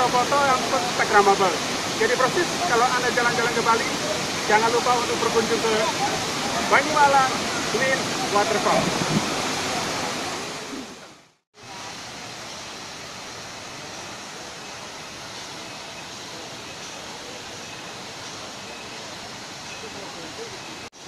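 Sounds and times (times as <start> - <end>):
outdoor ambience hiss: 0.0 - 21.0
waterfall roar: 0.0 - 21.0.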